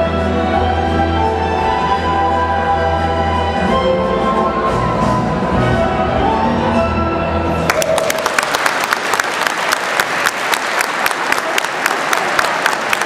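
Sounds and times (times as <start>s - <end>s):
orchestral dance music: 0.0s - 7.9s
audience applause: 7.7s - 13.0s.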